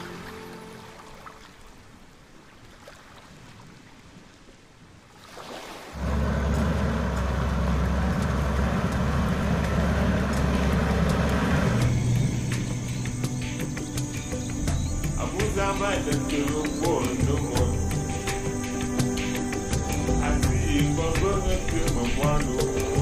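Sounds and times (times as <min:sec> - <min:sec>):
vehicle engine and road rumble: 0:06.0 - 0:16.6.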